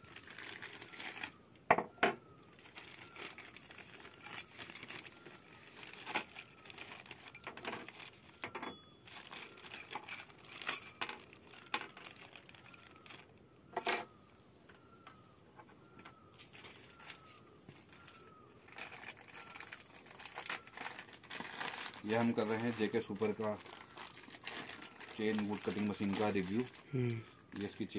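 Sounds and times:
plastic bag crinkling: 0.0 - 1.4, 2.5 - 13.4, 16.3 - 27.9
metal tools clinking: 0.0 - 14.3.

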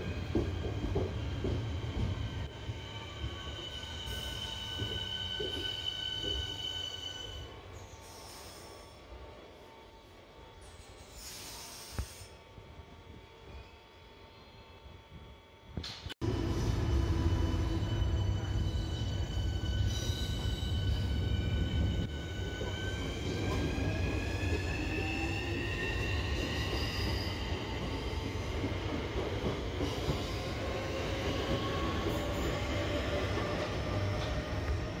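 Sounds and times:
train wheels rumbling on rail: 0.0 - 6.8, 15.8 - 35.0.

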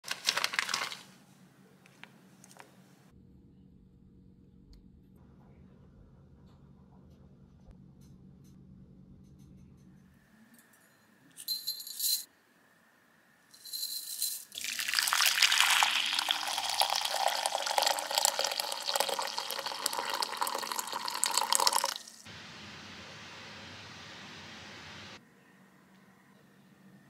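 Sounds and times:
water pouring into glass cup: 14.5 - 22.3.

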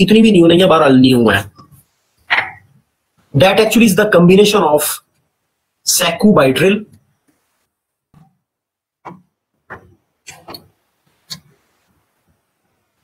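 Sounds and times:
stylus clicking on pen tablet: 9.0 - 10.7.

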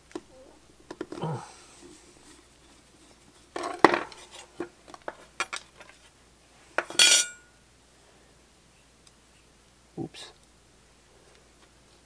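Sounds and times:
ringing metal clink: 6.9 - 7.5.

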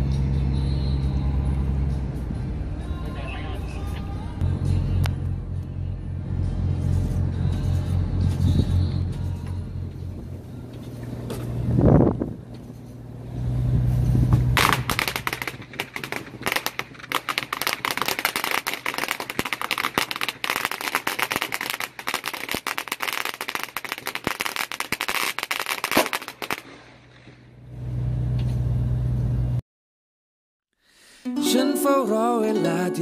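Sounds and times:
low engine hum: 0.0 - 24.7, 25.6 - 29.6
fireworks crackling: 14.2 - 27.4.

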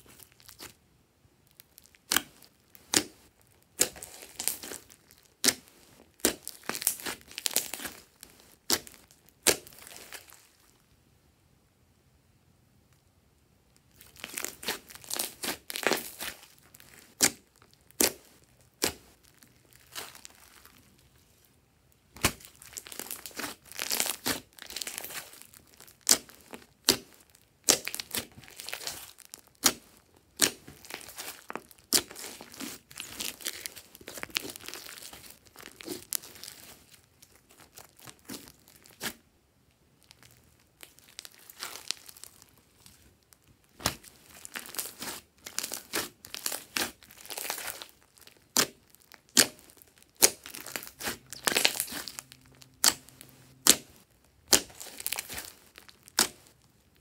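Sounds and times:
sticky slime clicks and crackles: 22.2 - 29.8, 43.7 - 53.9.

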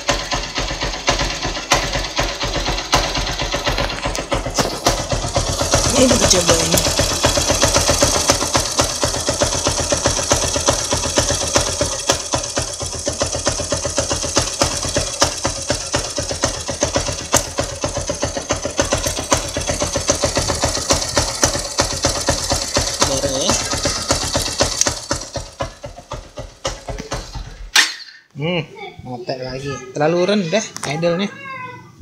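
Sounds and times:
engine knocking: 0.0 - 27.7
motorcycle engine idling: 0.0 - 27.7.

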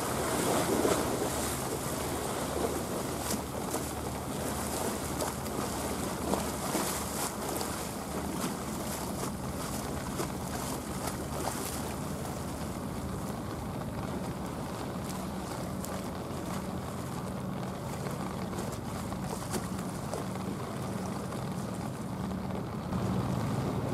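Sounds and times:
boat engine humming: 0.0 - 23.9.

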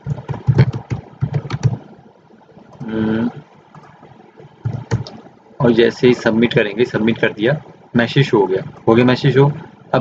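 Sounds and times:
keyboard typing: 0.0 - 1.9, 2.7 - 5.3
person humming: 2.8 - 3.4.

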